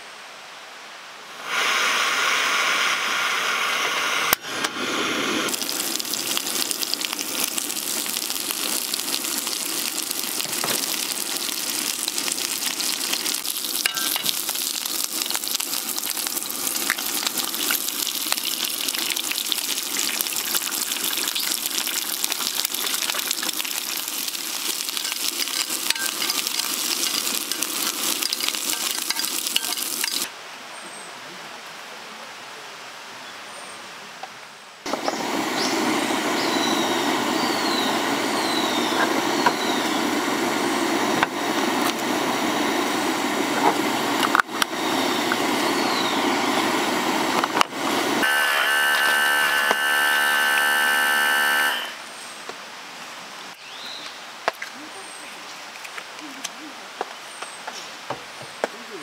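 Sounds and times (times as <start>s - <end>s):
hissing noise: 1.3s - 30.3s
dense crackling sizzle: 5.1s - 30.3s, 35.6s - 52.0s.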